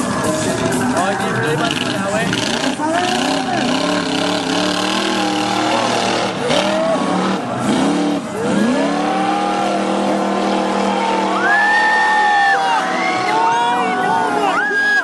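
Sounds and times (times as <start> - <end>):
monster truck engine revving: 0.0 - 14.5.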